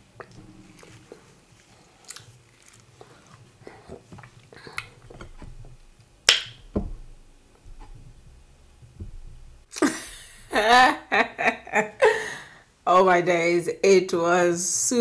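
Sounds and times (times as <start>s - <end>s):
woman laughing loudly: 9.8s - 12.5s.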